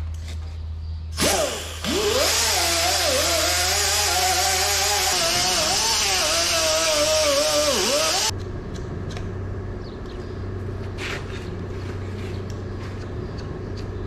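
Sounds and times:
pneumatic die grinder whining: 1.2s - 8.3s.

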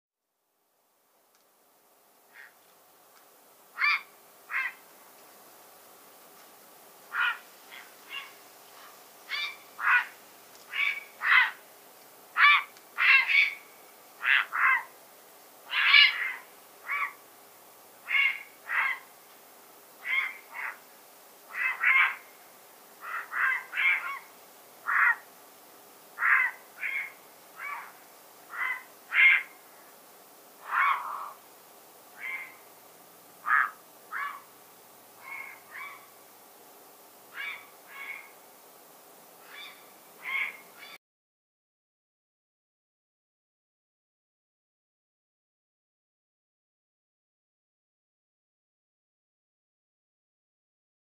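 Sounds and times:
herons croaking: 2.3s - 2.6s, 3.7s - 4.9s, 7.1s - 11.6s, 12.4s - 14.9s, 15.7s - 17.2s, 18.0s - 19.1s, 20.0s - 20.8s, 21.5s - 22.4s, 23.0s - 25.3s, 26.2s - 30.0s, 30.6s - 31.4s, 32.1s - 32.7s, 33.4s - 34.5s, 35.2s - 36.1s, 37.3s - 38.4s, 39.4s - 41.0s.

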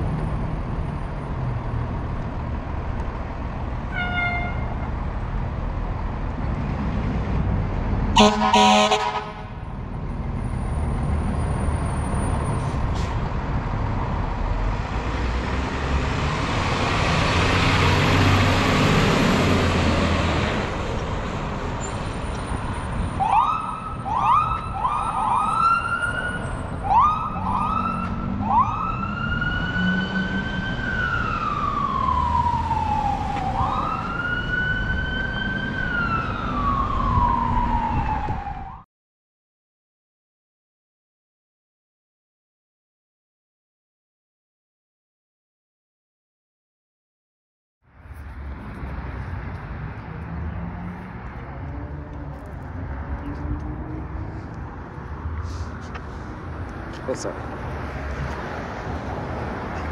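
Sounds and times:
air horn blast: 3.9s - 4.6s, 8.2s - 9.6s
electronic siren chirps and wail: 23.2s - 38.8s.

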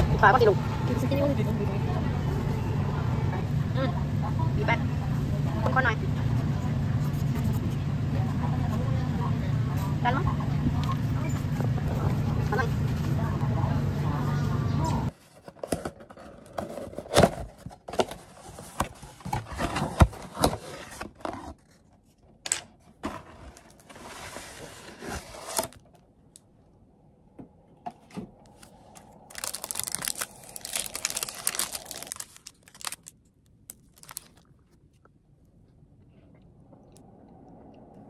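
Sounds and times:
paper liner crinkling and tearing: 28.5s - 34.8s.

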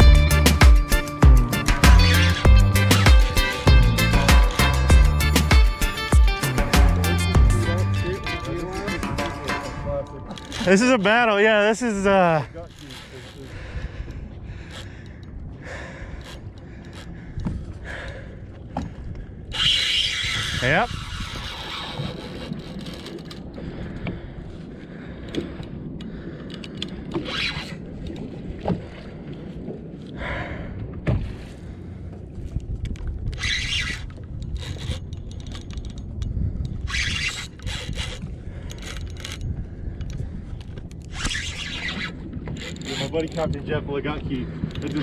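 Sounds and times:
water rumble: 0.0s - 45.0s
wind: 0.0s - 45.0s
spinning reel scraping: 12.5s - 13.6s, 19.6s - 23.4s, 33.3s - 36.0s, 36.8s - 39.4s, 41.1s - 43.6s.

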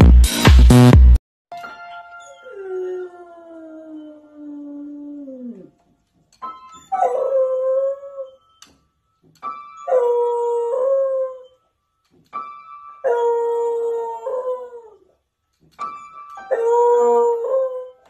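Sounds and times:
jangled piano notes: 1.5s - 3.0s, 9.2s - 11.2s, 12.3s - 13.5s, 15.8s - 17.6s
dog howling: 2.4s - 5.7s, 16.5s - 18.0s.

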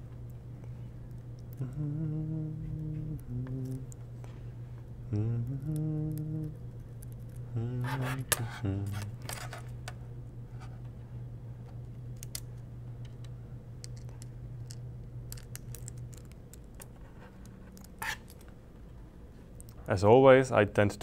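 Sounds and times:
steady low hum: 0.0s - 21.0s
person humming: 1.5s - 4.0s, 5.0s - 6.7s, 7.4s - 9.3s.

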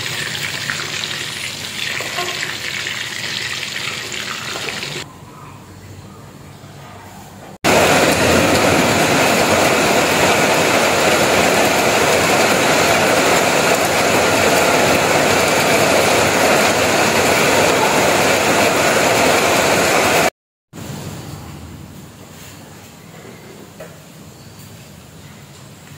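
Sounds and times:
food frying in hot oil: 0.0s - 5.0s
rain on a metal roof: 7.7s - 20.3s.

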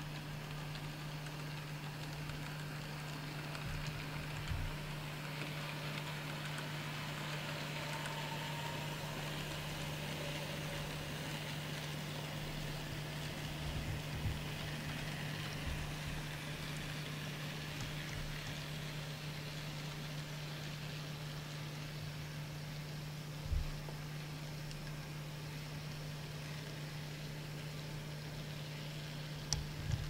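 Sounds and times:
small wheels hissing on track: 0.0s - 22.2s
model train electric hum: 0.0s - 30.0s.

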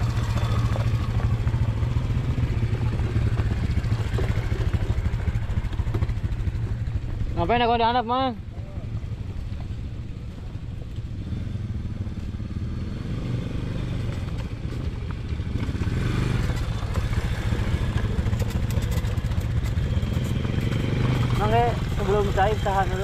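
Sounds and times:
atv engine running: 0.0s - 23.0s.

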